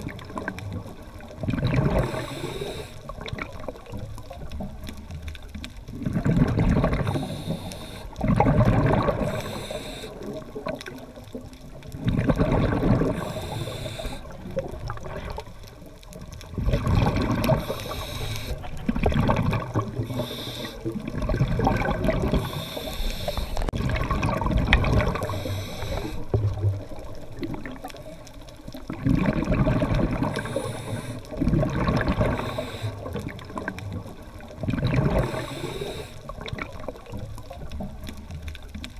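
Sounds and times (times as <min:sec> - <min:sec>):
exhaled bubbles gurgling underwater: 0:00.0 - 0:38.9
regulator inhale hiss: 0:01.9 - 0:03.1, 0:07.0 - 0:08.2, 0:09.2 - 0:10.4, 0:13.1 - 0:14.4, 0:17.5 - 0:18.6, 0:20.0 - 0:21.1, 0:22.3 - 0:23.7, 0:25.1 - 0:26.4, 0:30.3 - 0:31.4, 0:32.2 - 0:33.2, 0:35.2 - 0:36.3.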